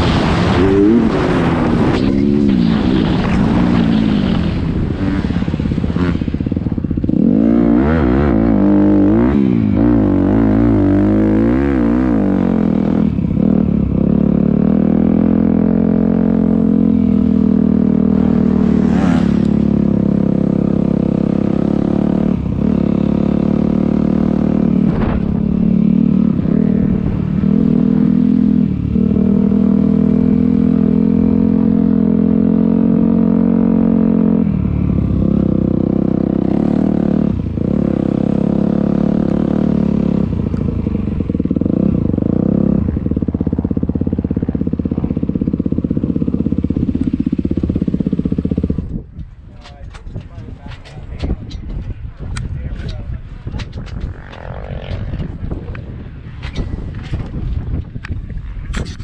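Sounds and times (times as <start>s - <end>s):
dirt bike engine revving: 0.0s - 40.5s.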